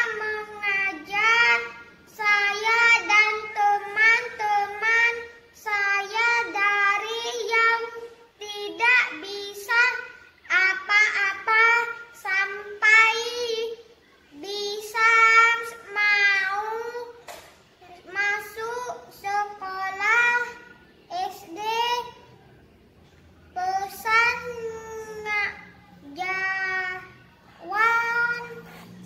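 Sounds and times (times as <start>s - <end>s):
boy singing unaccompanied: 0.0s - 17.2s, 17.8s - 22.3s, 23.6s - 29.0s.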